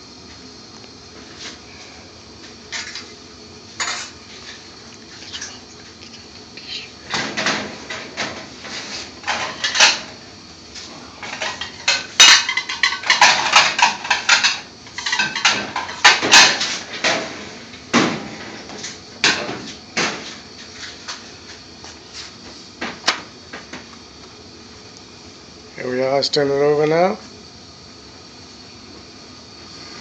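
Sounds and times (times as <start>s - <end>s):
pots and pans clattering: 7.1s - 10.2s, 11.2s - 20.3s.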